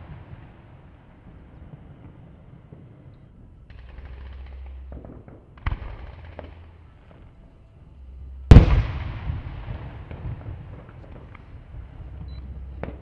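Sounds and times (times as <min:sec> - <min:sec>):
firework crack: 0:00.0 - 0:13.0
loud firework bang with echo: 0:08.5 - 0:11.2.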